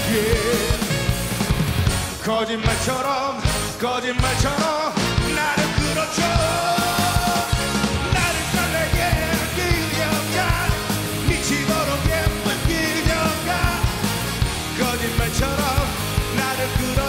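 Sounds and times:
man singing: 0.0s - 1.2s, 2.1s - 17.0s
pop rock band playing: 0.0s - 17.0s.

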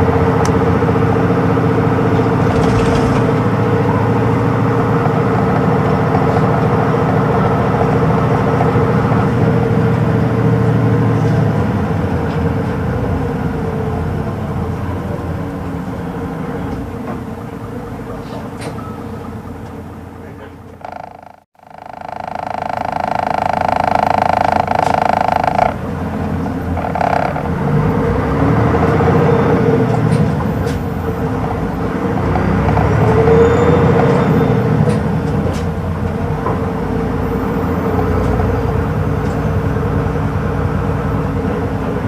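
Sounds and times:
bus diesel engine running: 0.0s - 42.0s
road and tyre noise: 0.0s - 42.0s
steady pitched tone: 20.8s - 27.7s.

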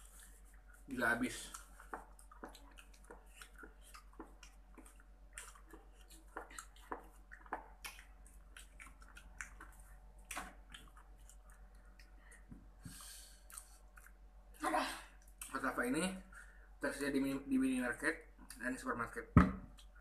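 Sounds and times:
wet chewing and mouth clicks: 0.0s - 14.4s, 15.2s - 15.6s.

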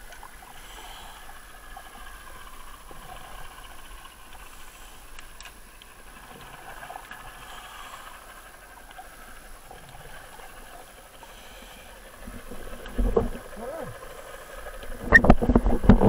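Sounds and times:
underwater hiss: 0.4s - 2.0s, 4.4s - 5.2s, 7.2s - 8.8s, 11.2s - 12.3s
faint clicks: 1.2s - 10.8s.

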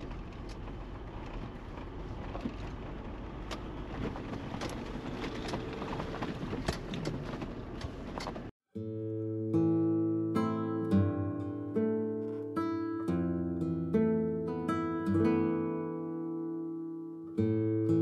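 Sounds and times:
vehicle engine and tyres rumbling: 0.0s - 8.6s
acoustic guitar music: 8.7s - 18.0s.

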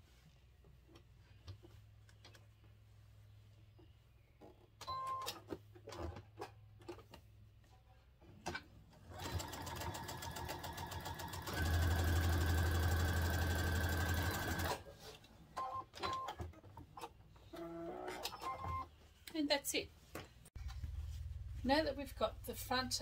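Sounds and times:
sewing machine stitching: 9.1s - 14.9s.

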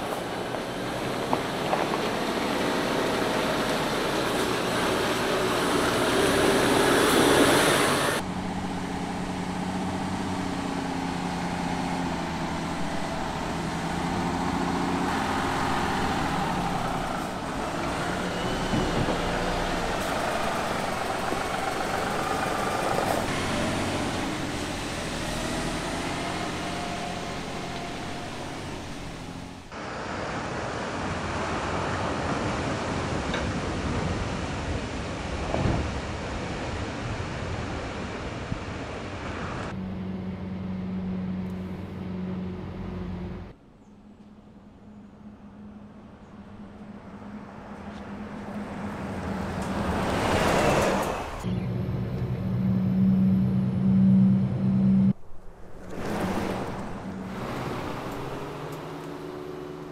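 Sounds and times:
tyres on gravel: 0.0s - 3.3s
truck diesel engine running: 0.0s - 29.7s.

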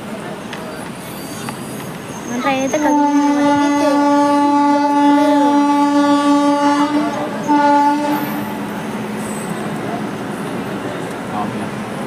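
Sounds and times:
train running noise: 0.0s - 12.0s
train horn blasts: 2.8s - 8.6s.

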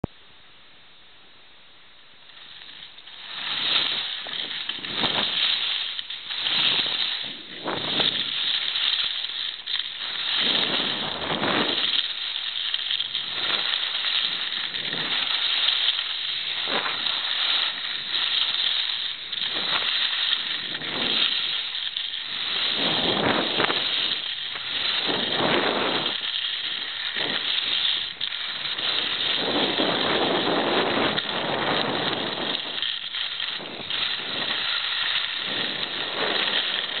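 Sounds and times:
skis scraping over snow: 2.2s - 37.0s
wind buffeting microphone: 3.2s - 8.9s, 10.0s - 12.0s, 19.2s - 21.6s, 22.3s - 37.0s.

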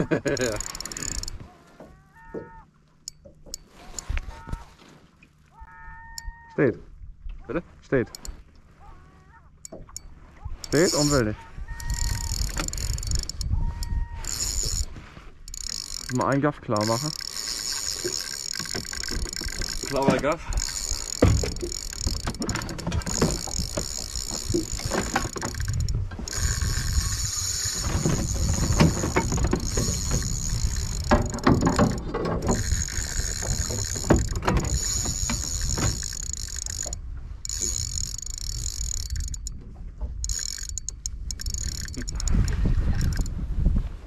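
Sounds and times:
fishing reel whirring: 0.0s - 1.4s, 5.7s - 6.4s, 8.0s - 8.4s, 9.6s - 39.6s, 40.2s - 43.3s
low wind rumble: 10.2s - 44.0s.

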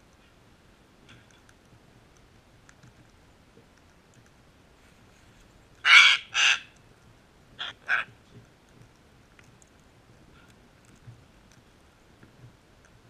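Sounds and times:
cockatoo screeching: 5.8s - 6.7s, 7.6s - 8.1s.

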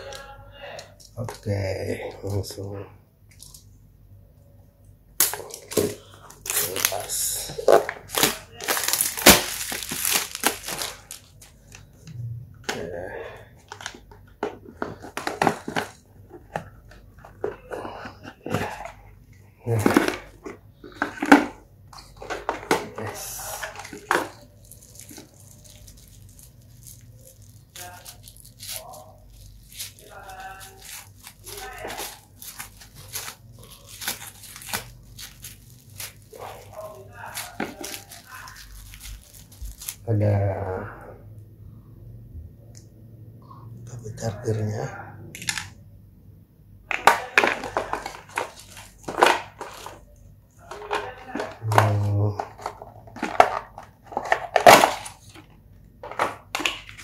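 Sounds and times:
cardboard box packaging crinkling: 5.2s - 11.8s, 13.6s - 19.0s, 19.6s - 40.1s, 47.0s - 57.0s.

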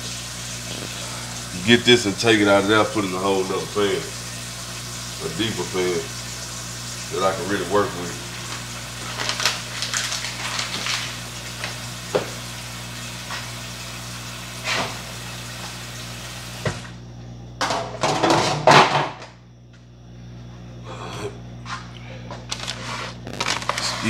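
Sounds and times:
steady low hum: 0.0s - 13.9s, 14.5s - 24.0s
crinkling and clatter: 8.5s - 11.8s, 22.5s - 24.0s
kitchen knocks and rustling: 17.6s - 19.3s.

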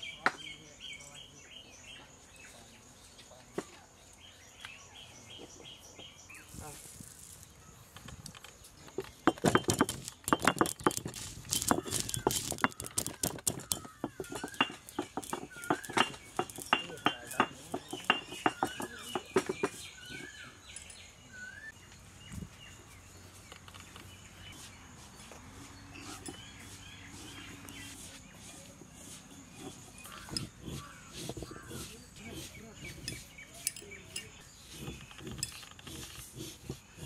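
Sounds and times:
small birds chirping: 0.0s - 37.0s
peppercorns crunching on stone: 9.1s - 19.1s.

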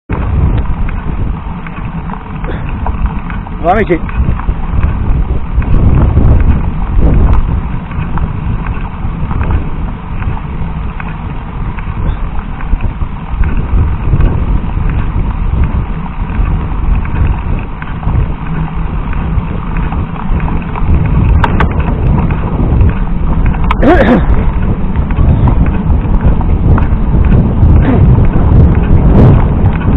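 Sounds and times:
bike rattling over bumps: 0.1s - 29.9s
tyres rumbling on gravel: 0.1s - 29.9s.

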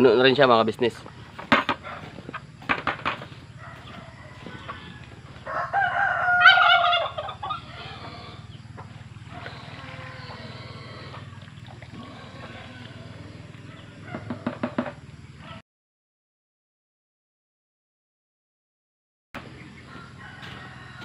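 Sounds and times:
rooster crowing: 3.2s - 8.4s, 12.0s - 14.7s, 19.4s - 21.0s.

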